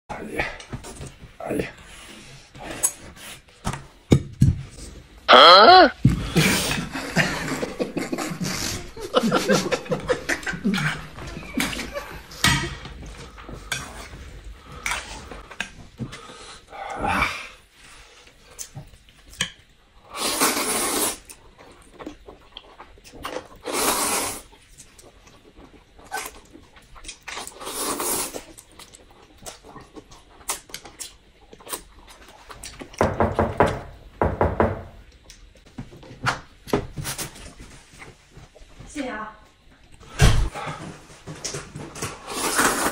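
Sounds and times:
noodles being slurped: 0:20.1 - 0:21.4, 0:23.1 - 0:24.5, 0:26.0 - 0:28.7, 0:42.2 - 0:42.9.

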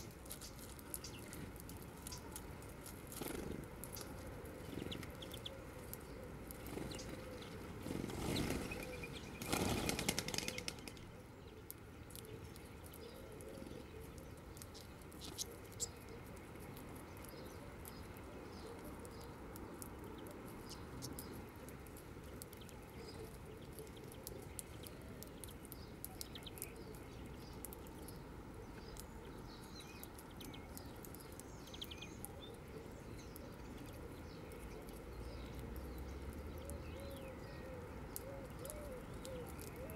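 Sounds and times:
small ticks: 0:00.0 - 0:08.6, 0:09.4 - 0:39.9
bird wingbeats flapping: 0:03.1 - 0:03.6, 0:07.8 - 0:11.1.

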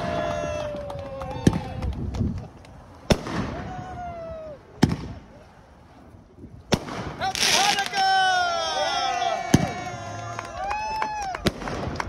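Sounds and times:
fireworks bangs: 0:03.0 - 0:05.4, 0:06.7 - 0:08.3, 0:09.4 - 0:10.0, 0:11.3 - 0:12.0.

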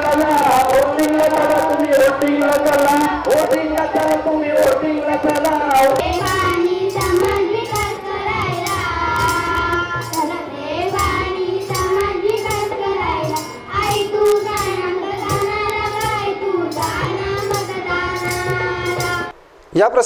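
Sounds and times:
children singing: 0:00.0 - 0:19.3
hand drum beating: 0:05.8 - 0:19.3.

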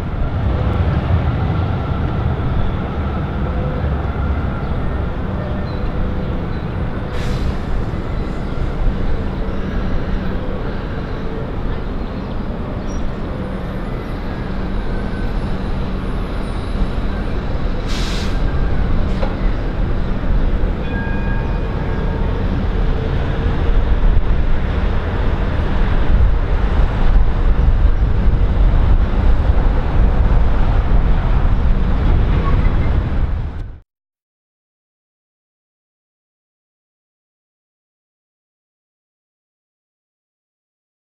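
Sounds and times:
city traffic rumble: 0:00.0 - 0:33.8
short hiss: 0:17.9 - 0:18.4.

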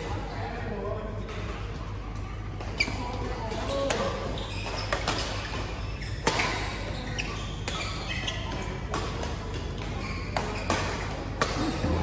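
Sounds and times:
shoes squeaking on court: 0:02.1 - 0:11.3.

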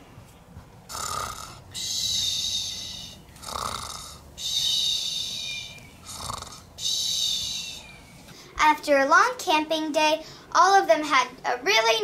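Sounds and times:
cartoon snoring: 0:00.9 - 0:04.9, 0:06.0 - 0:06.7.

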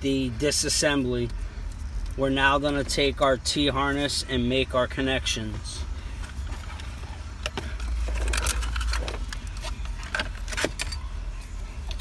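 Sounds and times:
low rumble of handling noise: 0:05.2 - 0:12.0.

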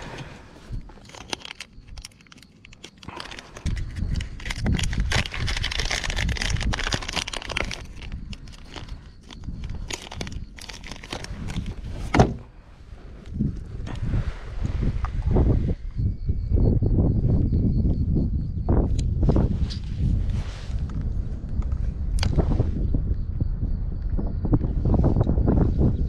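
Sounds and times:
plastic bag crinkling: 0:01.0 - 0:12.1.

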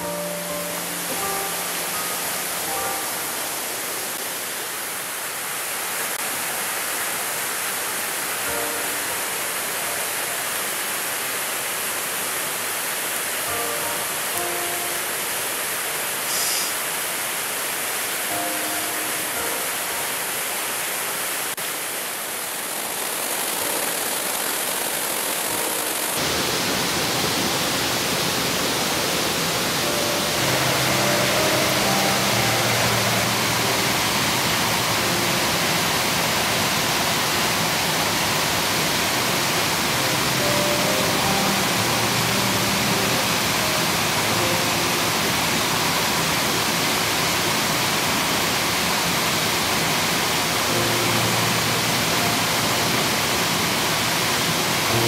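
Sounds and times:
faint music of held notes: 0:00.0 - 0:04.4, 0:08.0 - 0:11.5, 0:13.2 - 0:16.1, 0:18.2 - 0:20.8, 0:23.6 - 0:27.2, 0:28.2 - 0:55.0
water rushing over boulders: 0:00.0 - 0:55.0.

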